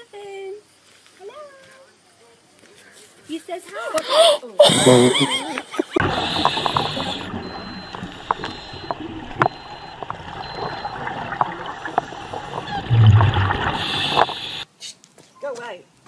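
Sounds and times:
steady underwater hiss: 0.0 - 14.7
regulator bubbles rushing: 6.0 - 14.6
sharp clicks and crackles: 6.0 - 14.6.

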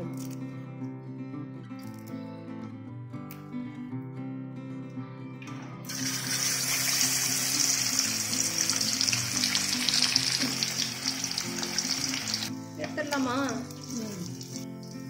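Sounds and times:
fish frying in hot oil: 5.9 - 12.5, 13.4 - 15.0.

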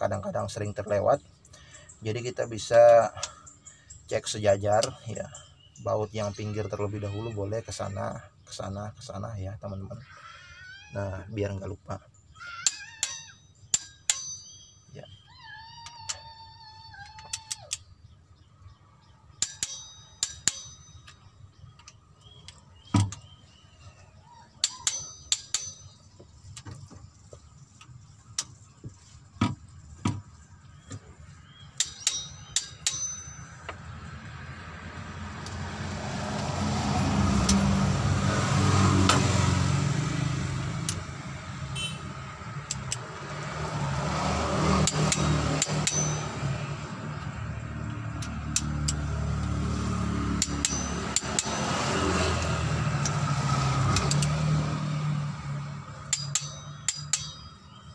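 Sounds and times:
torque wrench metallic clicks: 12.6 - 14.6, 19.4 - 21.2, 24.6 - 26.0, 31.7 - 33.8, 42.6 - 43.1, 44.8 - 46.5, 47.9 - 49.5, 50.4 - 53.2, 53.8 - 54.4, 56.0 - 57.6
passing road vehicle: 21.5 - 57.9.

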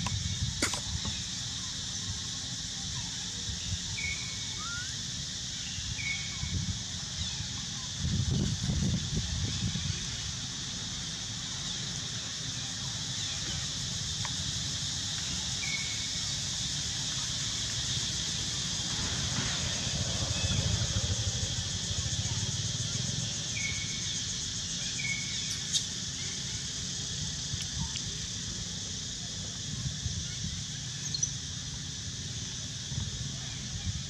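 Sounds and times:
sharp click: 0.0 - 1.1
high-pitched hiss: 0.0 - 34.0.

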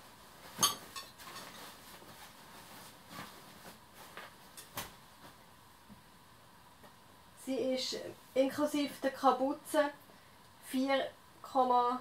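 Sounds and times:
soft rustling of jacket: 0.0 - 5.5.

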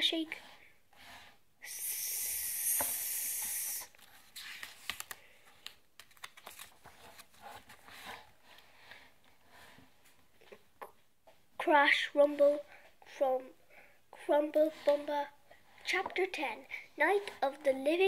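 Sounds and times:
person hissing with mouth: 1.6 - 3.9
book page rustling and turning: 3.9 - 8.6.

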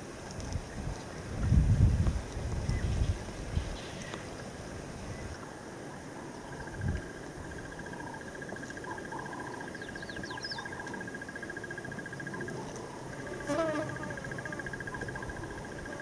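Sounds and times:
insect trilling: 6.2 - 16.0.

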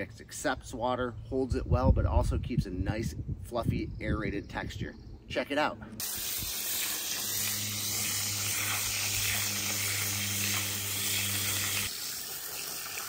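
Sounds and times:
hose water splashing on soil: 6.0 - 13.0.

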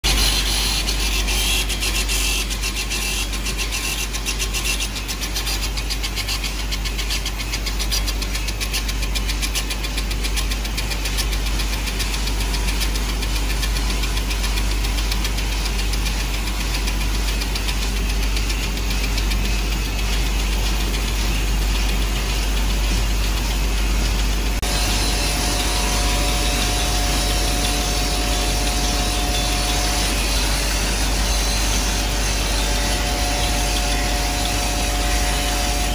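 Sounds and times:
grinding machine running: 0.0 - 35.9
two-pitch whine: 24.6 - 35.9.

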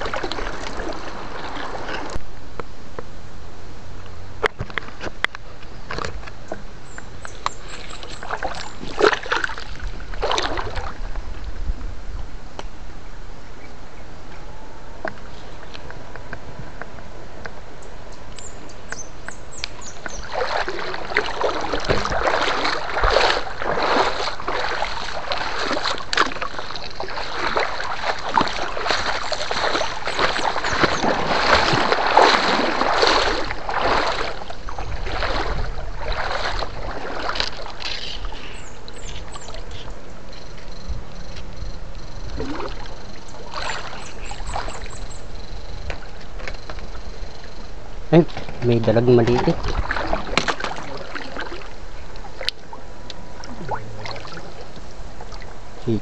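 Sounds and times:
shallow water splashing: 0.0 - 2.2, 7.3 - 11.6, 19.6 - 40.8, 42.0 - 56.0.

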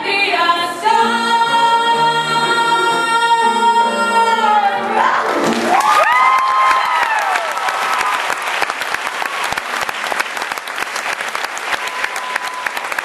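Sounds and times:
cheers and whoops: 5.0 - 8.4, 11.6 - 13.0
audience applauding: 5.0 - 13.0.

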